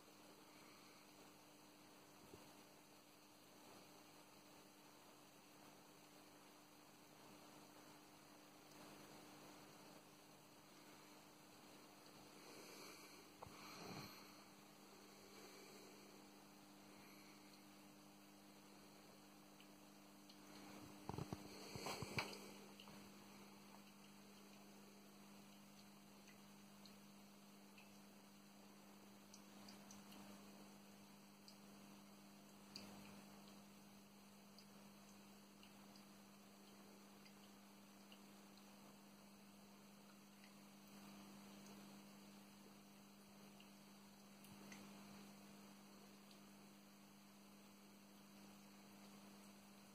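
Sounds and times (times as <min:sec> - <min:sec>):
faint steady hum: 0:00.0 - 0:49.9
coffee dripping ticks: 0:16.5 - 0:49.9.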